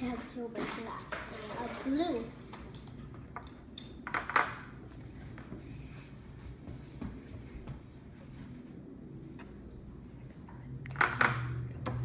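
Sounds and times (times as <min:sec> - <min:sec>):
brush scratching on canvas: 0:05.0 - 0:09.6.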